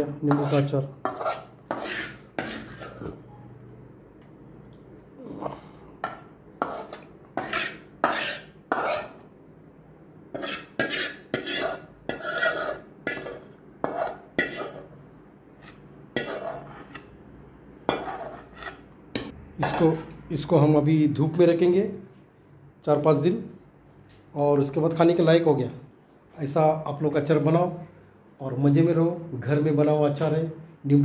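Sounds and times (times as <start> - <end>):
spoon scraping metal pan: 0.3 - 3.2, 6.0 - 9.2, 10.3 - 17.2, 17.9 - 20.1.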